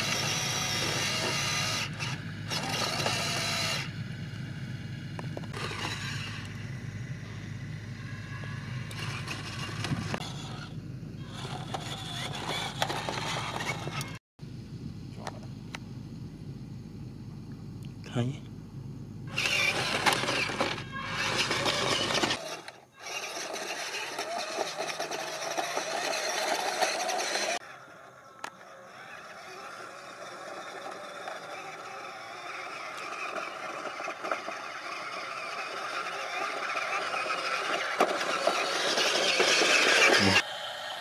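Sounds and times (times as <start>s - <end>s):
electric motors and gears whirring: 0.0s - 14.2s, 18.7s - 41.0s
steady whine: 0.0s - 41.0s.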